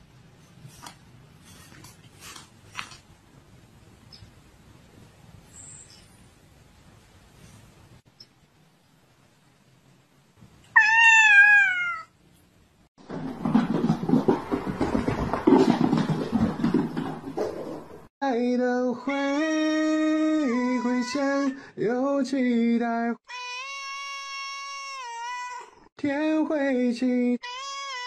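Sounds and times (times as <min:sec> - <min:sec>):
rough cat sounds: 0:10.7 - 0:12.2
high voice singing slow melody: 0:18.2 - 0:23.2.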